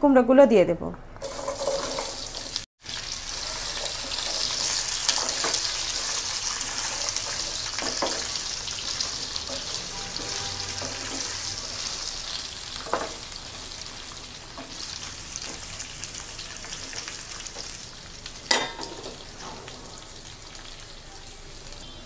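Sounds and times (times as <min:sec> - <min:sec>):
pumpkin sizzling in hot oil: 0:01.2 - 0:22.0
spatula knocking on pan: 0:07.8 - 0:08.4.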